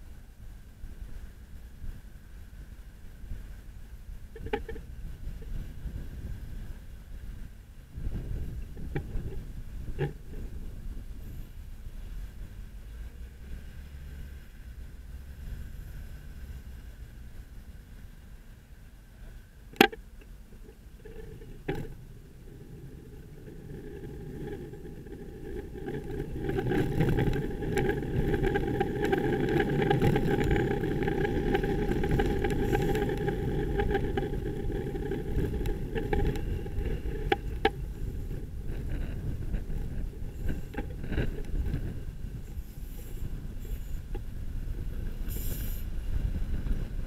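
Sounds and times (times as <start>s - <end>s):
bus running alongside: 0.0s - 47.0s
city traffic rumble: 0.0s - 47.0s
steady whine: 14.4s - 47.0s.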